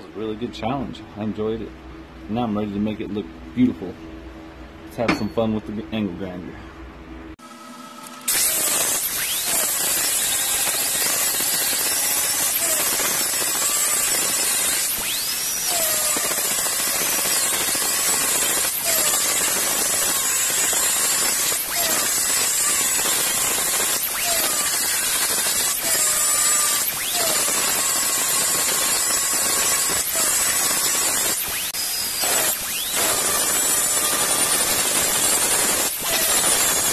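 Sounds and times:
angle grinder grinding steel: 0:08.0 - 0:36.9.

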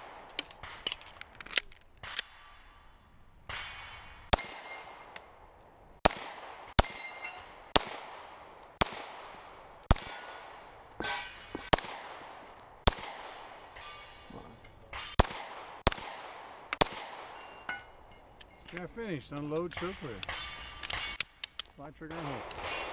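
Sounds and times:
steel targets ringing: 0:02.3 - 0:05.2, 0:06.8 - 0:07.6, 0:11.0 - 0:11.7, 0:13.7 - 0:15.2, 0:17.3 - 0:18.3
pistol shots: 0:03.5 - 0:05.2, 0:06.0 - 0:14.1, 0:14.9 - 0:17.7, 0:19.4 - 0:22.9.

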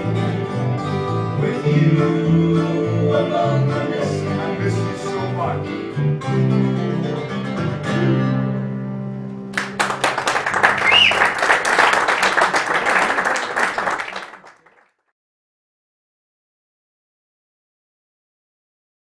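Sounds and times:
audience applause: 0:09.6 - 0:15.0
short whistle: 0:10.8 - 0:11.4.

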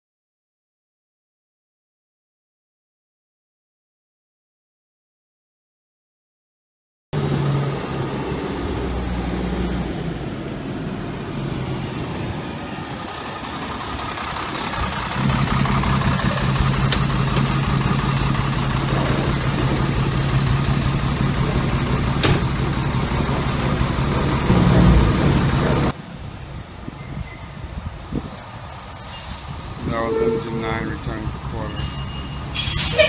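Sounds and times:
diesel engine drone: 0:07.2 - 0:26.8, 0:27.5 - 0:33.0.

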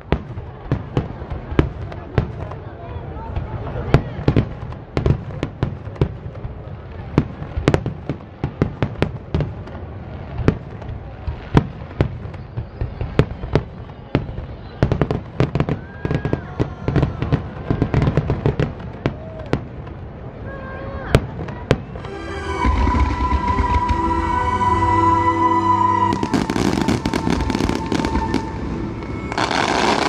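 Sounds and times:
firework shells bursting: 0:26.2 - 0:30.0.

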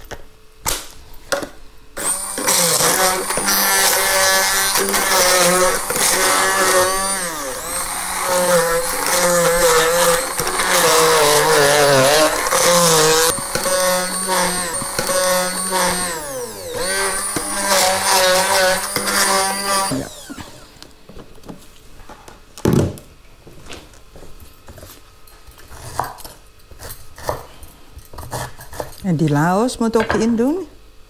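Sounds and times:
immersion blender motor whine: 0:02.0 - 0:20.9.

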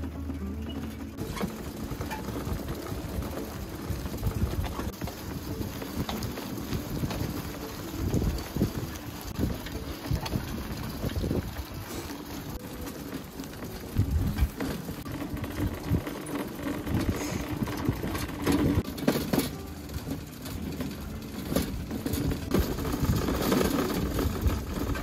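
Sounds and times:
boat engine humming: 0:00.0 - 0:25.0
wind buffeting microphone: 0:01.2 - 0:12.6, 0:13.7 - 0:18.9, 0:22.1 - 0:25.0.

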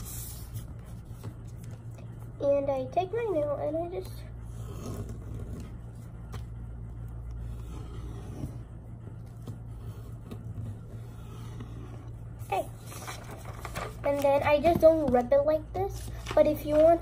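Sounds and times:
low hum: 0:00.0 - 0:17.0
fingernail scraping paper: 0:04.5 - 0:06.0, 0:07.4 - 0:12.2
paper rustling: 0:12.8 - 0:15.3, 0:15.9 - 0:17.0.

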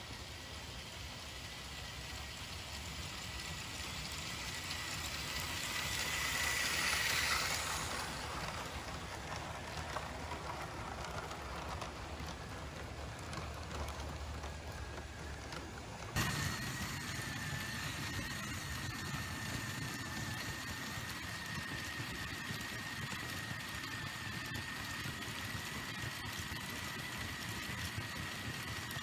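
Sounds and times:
thin motor whine: 0:00.0 - 0:29.0
toy train wheels rattling on track: 0:00.0 - 0:29.0.

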